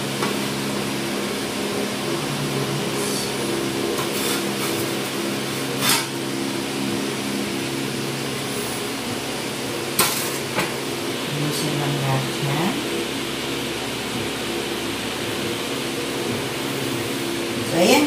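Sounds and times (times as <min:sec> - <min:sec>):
steady background hum: 0:00.0 - 0:18.0
metal spatula scraping a tray: 0:04.0 - 0:04.9, 0:05.8 - 0:06.2.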